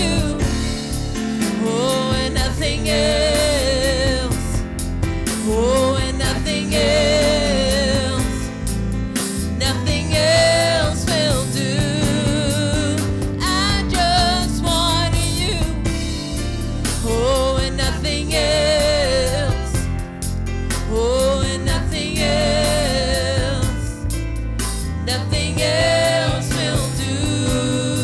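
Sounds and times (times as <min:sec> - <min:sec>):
woman singing with vibrato: 0:00.0 - 0:00.8, 0:01.4 - 0:04.6, 0:05.4 - 0:08.4, 0:09.6 - 0:16.0, 0:17.0 - 0:19.8
drums: 0:00.0 - 0:28.0
keyboard: 0:00.0 - 0:28.0.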